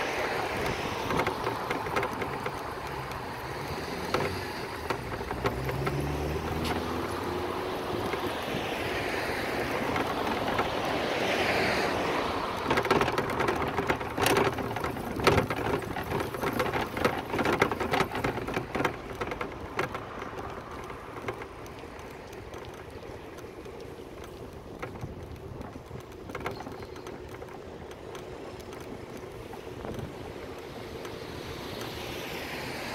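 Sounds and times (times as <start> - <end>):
bicycle rattling clicks and knocks: 0.0 - 32.9
bicycle rushing noise: 0.0 - 32.9.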